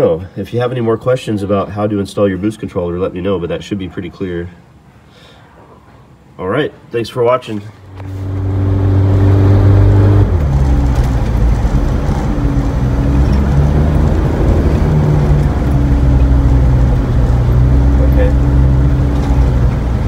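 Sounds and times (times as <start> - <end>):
diesel engine running from inside: 8.0 - 20.0.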